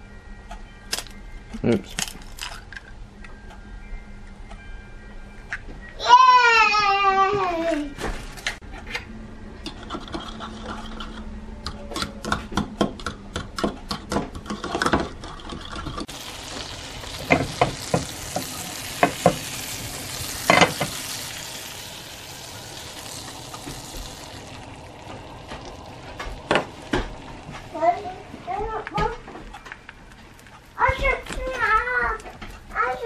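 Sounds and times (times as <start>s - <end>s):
butter sizzling in frying pan: 16.0s - 29.3s
utensil knocking pan: 16.6s - 21.9s.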